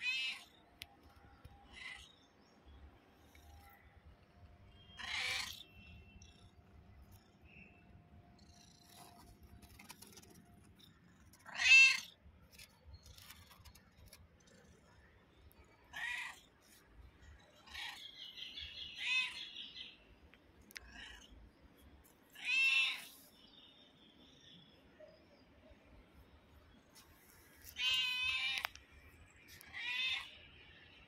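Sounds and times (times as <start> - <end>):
cat meowing: 5.0 - 5.6, 11.5 - 12.1.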